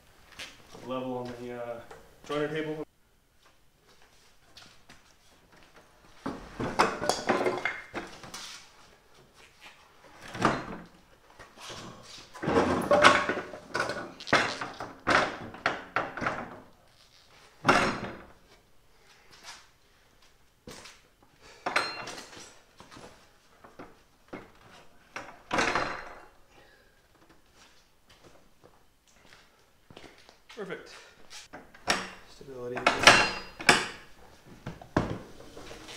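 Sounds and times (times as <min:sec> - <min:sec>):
steel stand thunks and scrapes: 0:31.9 - 0:34.1.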